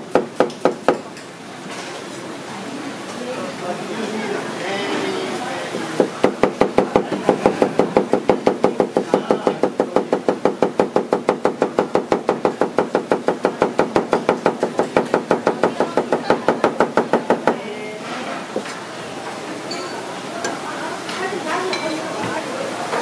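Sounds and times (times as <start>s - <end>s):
knife chopping on plastic board: 0.1s - 1.0s, 6.0s - 17.6s.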